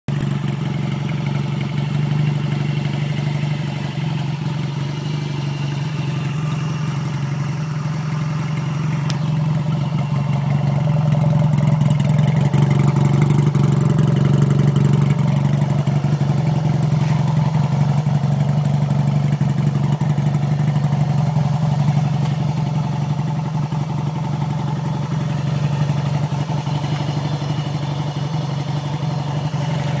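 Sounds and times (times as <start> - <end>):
motorcycle engine idling: 0.1 - 30.0.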